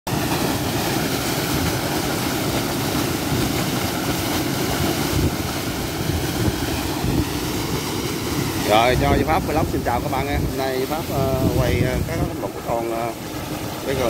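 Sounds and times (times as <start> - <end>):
water gushing from pipe: 0.1 - 14.0.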